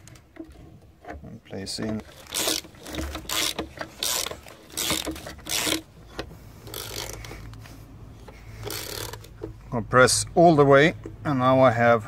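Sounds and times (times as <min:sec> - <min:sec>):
ratchet wrench clicking: 0:02.0 - 0:07.6, 0:08.2 - 0:09.6.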